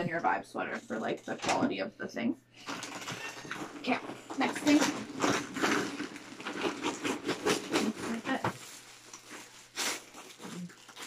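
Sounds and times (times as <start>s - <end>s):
plastic packaging rustling: 2.6s - 11.0s.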